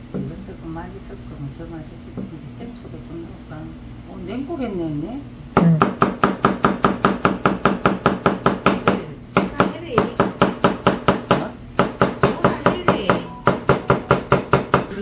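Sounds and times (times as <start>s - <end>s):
cleaver chopping on plastic board: 5.8s - 14.9s.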